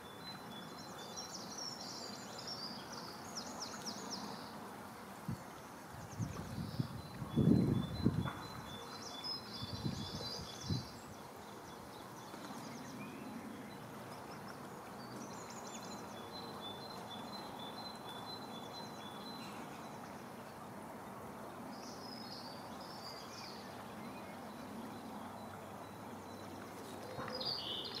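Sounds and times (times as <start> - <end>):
steady background hiss: 0.0 - 28.0
small birds singing: 5.3 - 20.6, 21.7 - 28.0.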